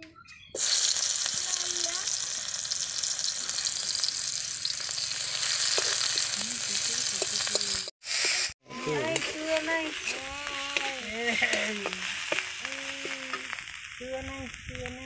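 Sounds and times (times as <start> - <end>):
garlic sizzling in hot oil: 0.6 - 15.0
metal spatula stirring: 9.0 - 13.5.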